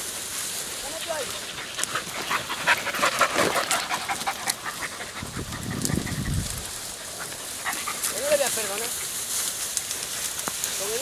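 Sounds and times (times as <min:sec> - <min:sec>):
sharp crackles: 0:00.0 - 0:11.0
dog panting: 0:00.9 - 0:09.2.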